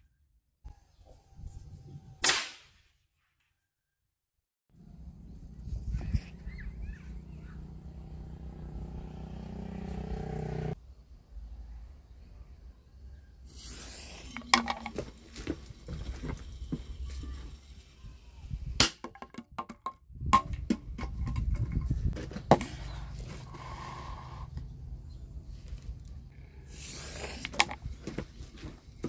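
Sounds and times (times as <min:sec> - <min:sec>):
firecracker pops and bangs: 0:02.2 - 0:02.9
firecracker hiss: 0:13.5 - 0:18.8, 0:26.6 - 0:27.7.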